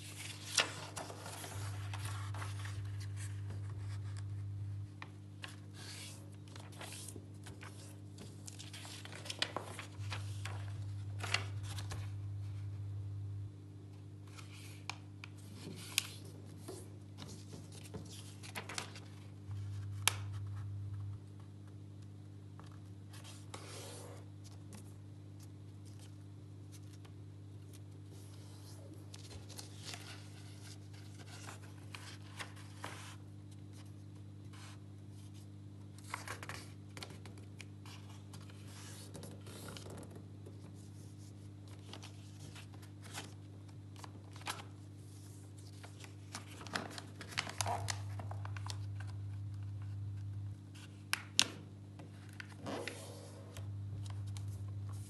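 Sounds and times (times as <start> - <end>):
paper rustling and scraping: 0.0 - 4.4, 5.4 - 12.2, 15.4 - 20.6, 28.1 - 33.9, 44.0 - 49.2, 52.2 - 55.0.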